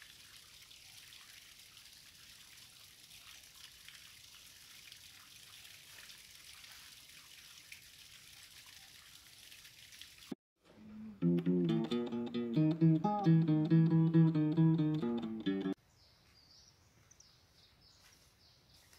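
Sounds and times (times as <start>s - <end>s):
water trickling into a pool: 0.0s - 10.4s.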